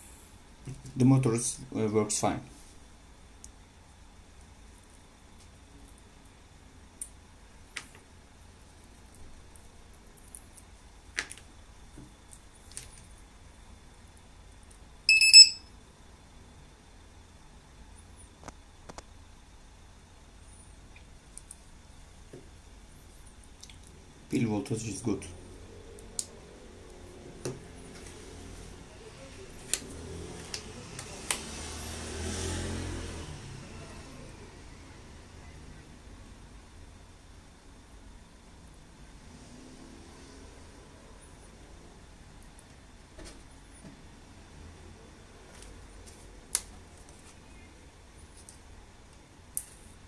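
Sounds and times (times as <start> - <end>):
low steady hum: 0.0 - 31.4
high-pitched electronic beeping: 15.1 - 15.6.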